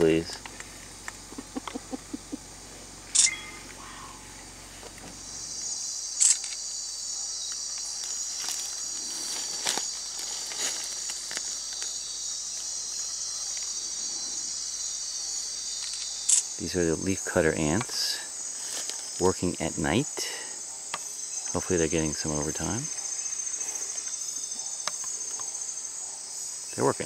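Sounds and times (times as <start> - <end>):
night insect chorus: 0.0 - 27.0
sharp clicks: 6.2 - 6.6, 15.8 - 16.5.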